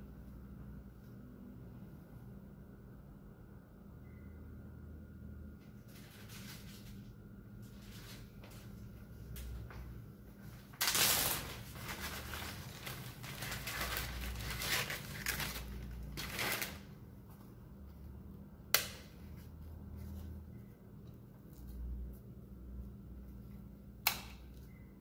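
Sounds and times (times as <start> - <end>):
low steady hum: 0.0 - 25.0
rustling crinkling handling noise: 5.8 - 9.8, 10.4 - 18.0.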